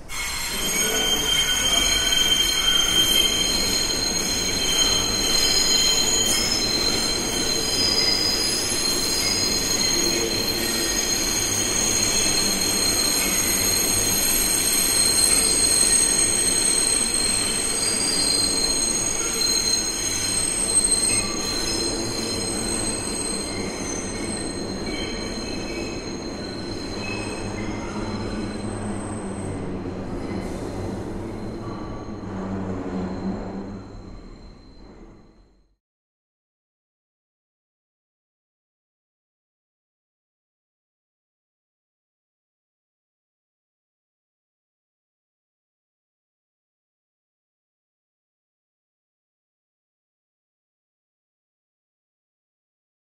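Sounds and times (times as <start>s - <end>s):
rumble of moving train cars: 0.0s - 35.8s
train wheels squealing on rails: 0.0s - 35.8s.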